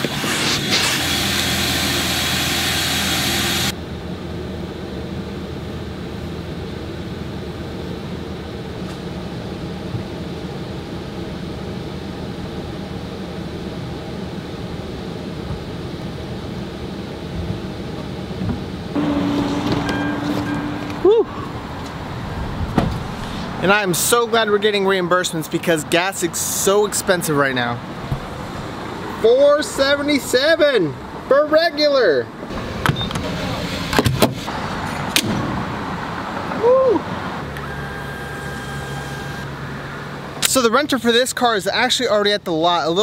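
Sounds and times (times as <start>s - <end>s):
loud steady hiss: 0.0s - 3.8s
steady hum: 0.0s - 31.4s
car engine and road rumble: 0.0s - 41.2s.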